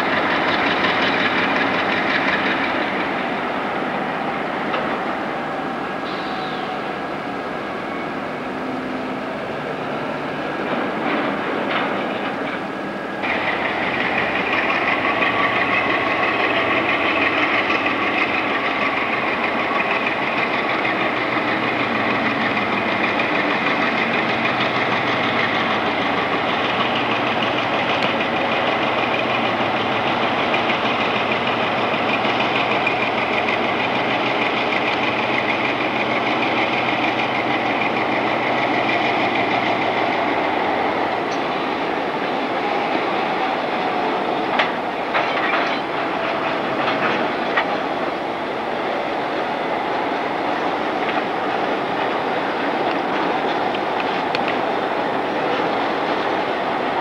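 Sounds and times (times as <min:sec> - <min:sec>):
diesel locomotive engine running: 0:00.0 - 0:57.0
high-pitched whine: 0:02.0 - 0:10.4.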